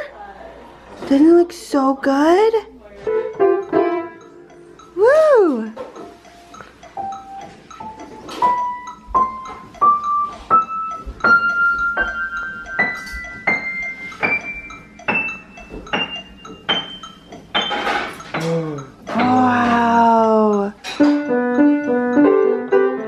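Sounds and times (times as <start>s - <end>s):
jumble of piano notes: 17.6s - 23.0s.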